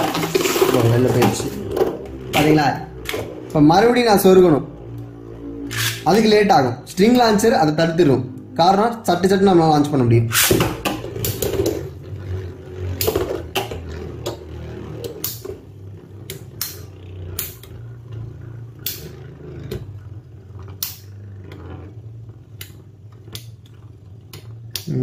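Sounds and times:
spinning tops whirring: 0.0 - 25.0
spinning tops clacking together: 5.7 - 6.1.

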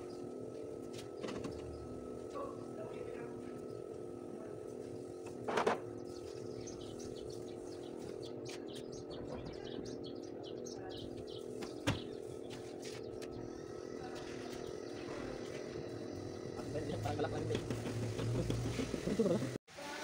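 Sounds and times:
small birds chirping: 0.0 - 17.7
steady hum: 0.0 - 19.6.

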